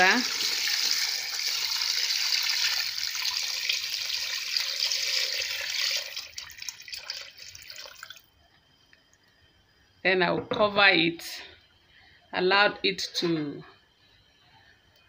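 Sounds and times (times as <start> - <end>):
liquid pouring and splashing: 0.1 - 8.3.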